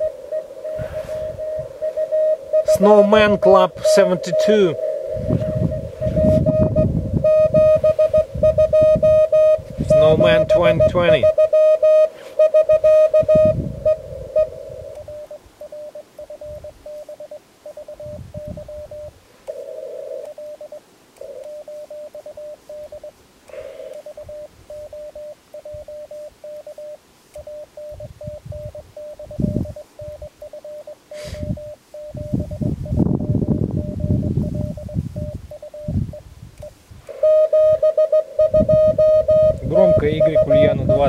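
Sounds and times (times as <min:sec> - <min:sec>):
morse code tone: 0:00.0 - 0:19.1, 0:20.2 - 0:23.1, 0:23.9 - 0:41.0
faint radio hiss: 0:00.0 - 0:33.0, 0:33.8 - 0:41.0
low thumps: 0:04.9 - 0:11.4.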